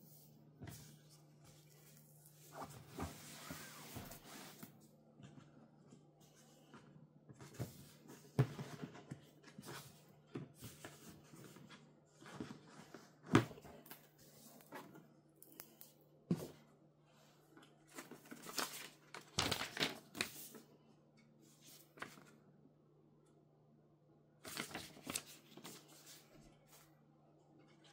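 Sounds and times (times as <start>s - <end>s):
cardboard and plastic rustling: 17.9s - 20.6s.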